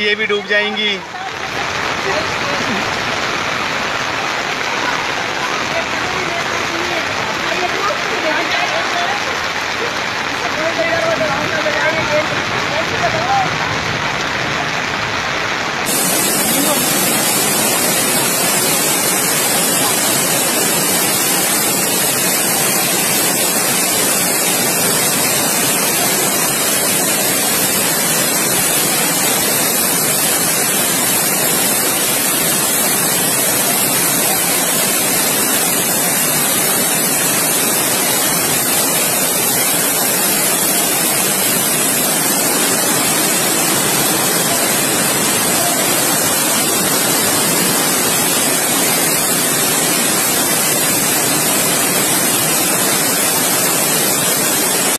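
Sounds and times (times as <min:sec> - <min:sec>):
floodwater rushing down a street: 0:00.0 - 0:54.9.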